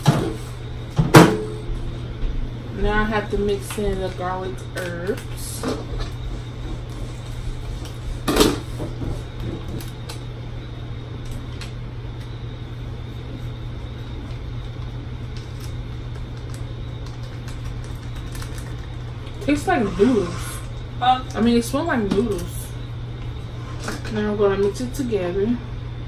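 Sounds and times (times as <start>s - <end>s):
low electrical hum: 0.0s - 26.0s
packet tearing open: 15.4s - 19.0s.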